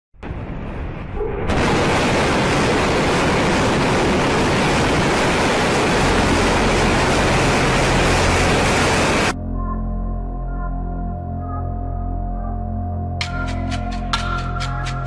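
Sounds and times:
rocket engines rushing: 1.5 - 9.4.

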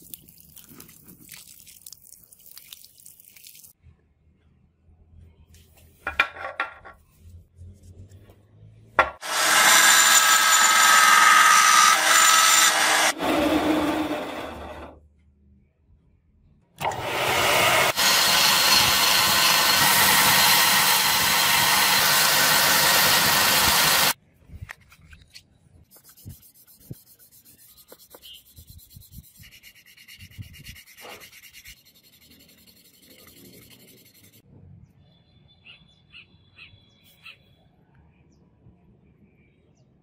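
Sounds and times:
belt sander grinding metal: 9.2 - 15.0, 16.8 - 24.2
hand sanding scratchy rubbing: 25.9 - 34.4.

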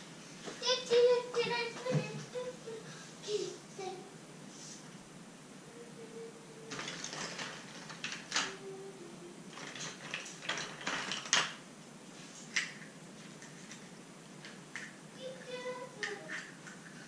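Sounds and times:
plastic eggs clattering: 6.7 - 8.6, 9.5 - 11.6.

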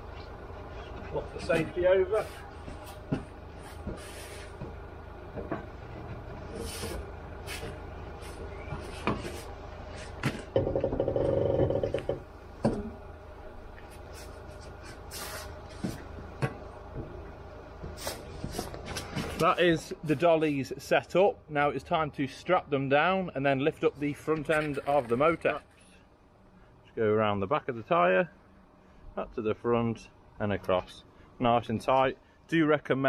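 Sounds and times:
low engine hum: 0.0 - 20.1.

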